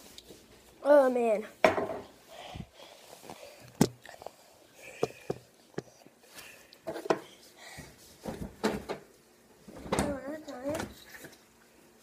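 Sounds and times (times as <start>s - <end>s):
boy breathing hard: 2.2s - 5.4s, 6.3s - 8.0s.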